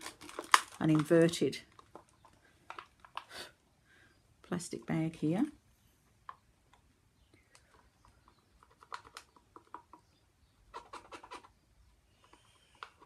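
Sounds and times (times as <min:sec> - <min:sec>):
plastic bag crinkling: 0:00.0 - 0:03.3.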